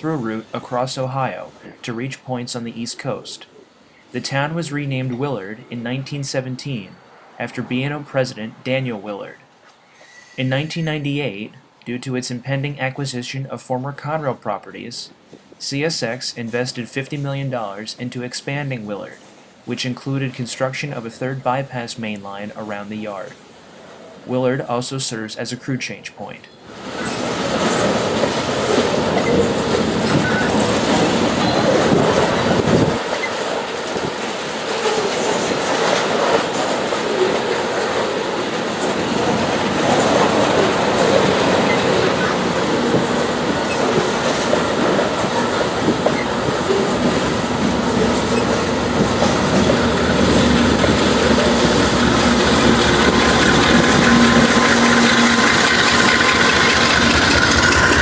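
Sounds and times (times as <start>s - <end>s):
diesel locomotive engine: 26.7s - 58.0s
train wheels rolling on rails: 26.7s - 58.0s.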